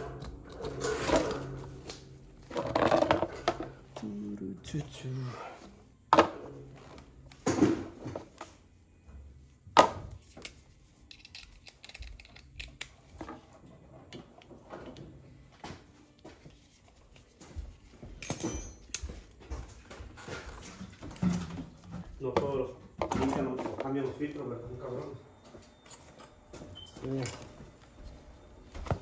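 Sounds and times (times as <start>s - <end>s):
metal tools clinking and knocking: 18.2s - 19.2s.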